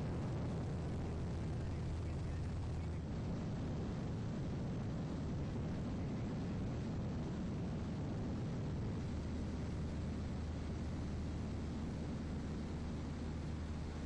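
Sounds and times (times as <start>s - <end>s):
aircraft engine and airflow drone: 0.0s - 14.0s.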